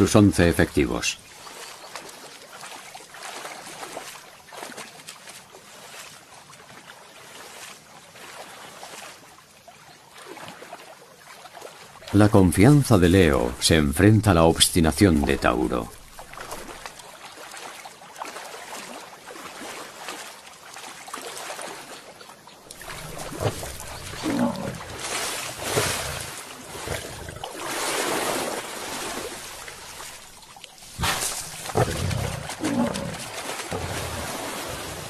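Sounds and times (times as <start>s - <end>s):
splashing and rushing water: 0.0s - 35.0s
buffalo grunting: 22.8s - 25.0s, 30.9s - 34.3s
lions growling: 22.8s - 25.1s, 30.9s - 34.3s.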